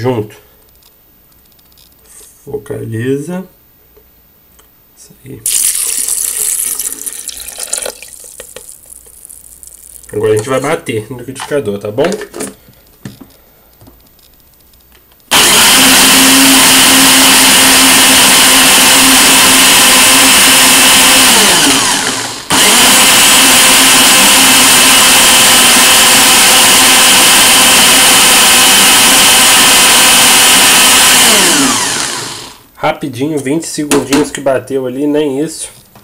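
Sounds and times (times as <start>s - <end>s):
blender running: 5.5s - 10.1s, 15.3s - 32.6s.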